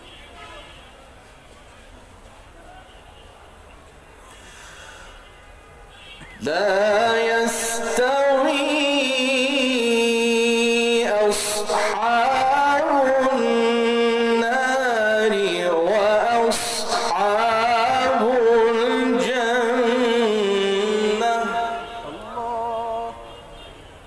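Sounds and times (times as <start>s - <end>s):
man reciting in melodic chant: 6.2s - 24.0s.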